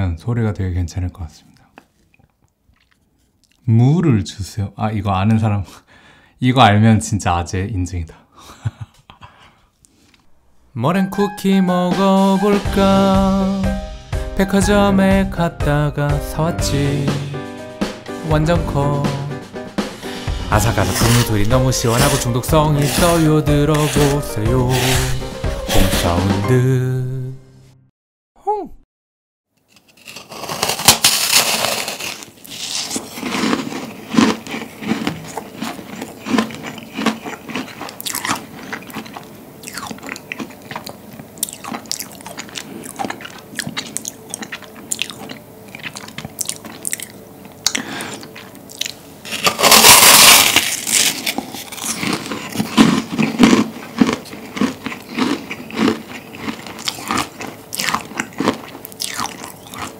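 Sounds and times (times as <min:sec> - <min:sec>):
crunchy cookie being chewed: 0:02.0 - 0:03.7, 0:29.7 - 0:59.9.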